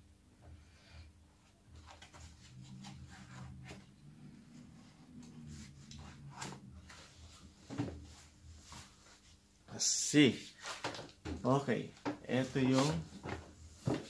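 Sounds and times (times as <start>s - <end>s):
gimbal rubbing and scraping: 1.7s - 9.4s.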